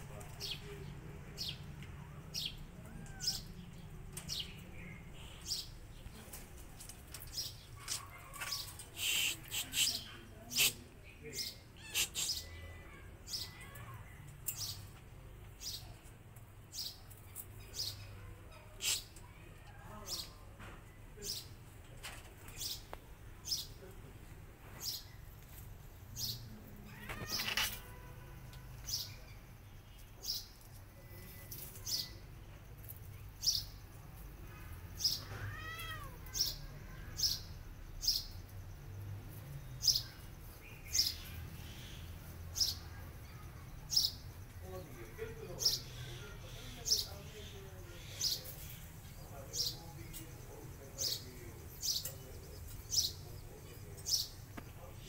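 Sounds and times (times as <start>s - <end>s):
lovebirds chirping: 0.0s - 21.8s, 22.4s - 55.0s
kitten meowing: 11.8s - 13.9s, 26.9s - 27.8s, 35.2s - 36.4s.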